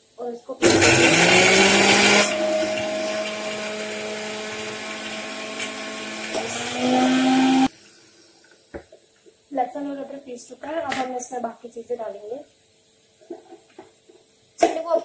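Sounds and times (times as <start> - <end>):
mixer grinder motor whine: 0.6 - 7.7.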